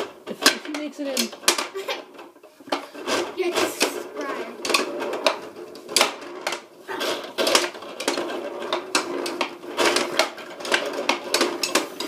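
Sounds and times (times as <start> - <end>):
foosball rods rattling and clacking: 0.0 - 12.0.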